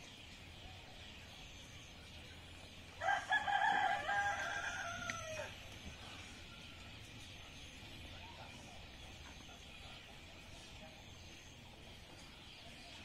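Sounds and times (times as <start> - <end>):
rooster crowing: 3.0 - 5.6.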